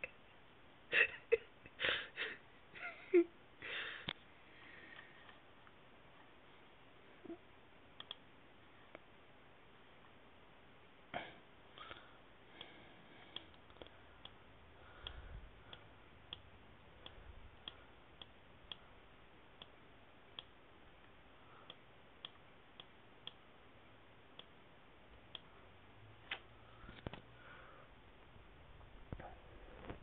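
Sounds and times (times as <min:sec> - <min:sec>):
light sharp ticks: 0:08.0 - 0:08.2.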